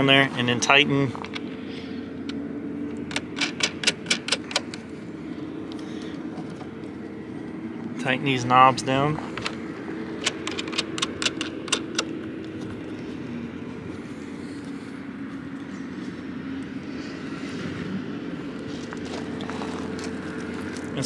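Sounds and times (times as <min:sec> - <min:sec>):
low mechanical hum: 0:00.0 - 0:21.0
sharp clicks and knocks: 0:02.2 - 0:04.8, 0:10.2 - 0:12.7.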